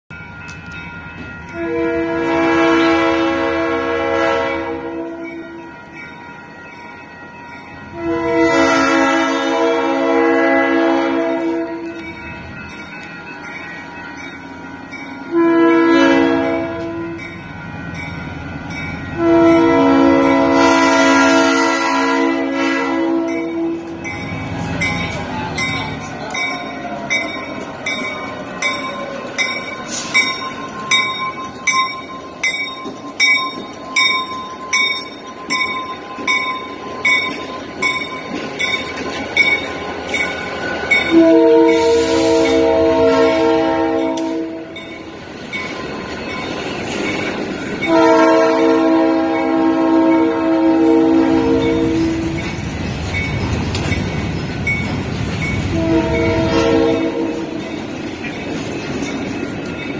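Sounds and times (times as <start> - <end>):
crossing bell dinging: 0.1 - 59.9
locomotive air horn blasts: 1.6 - 5.6, 7.9 - 12.0, 15.3 - 17.2, 19.2 - 23.9, 41.1 - 44.8, 47.8 - 52.4, 55.7 - 57.6
freight cars rolling: 16.4 - 48.6, 49.2 - 59.9.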